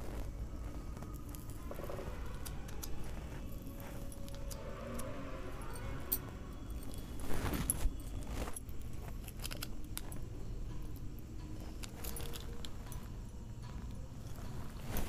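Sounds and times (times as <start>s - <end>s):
plastic packets rustling and crinkling: 0.0s - 4.8s, 6.2s - 10.4s
light clicks and jingles: 0.0s - 15.0s.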